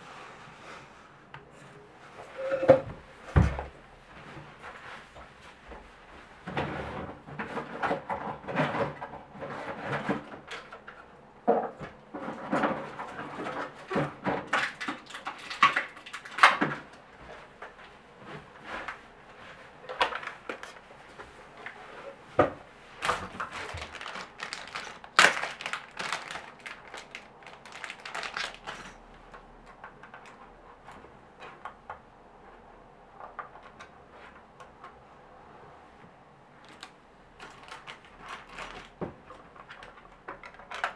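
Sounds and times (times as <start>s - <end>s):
objects clicking and rustling: 7.3s - 17.0s, 19.9s - 20.9s, 23.0s - 31.8s, 36.6s - 40.9s.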